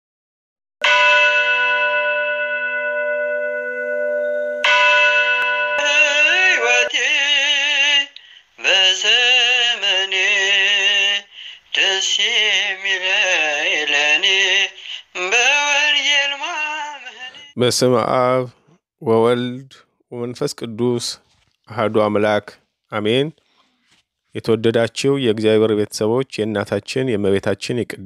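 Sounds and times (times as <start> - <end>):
person singing with vibrato: 5.7 - 17.6.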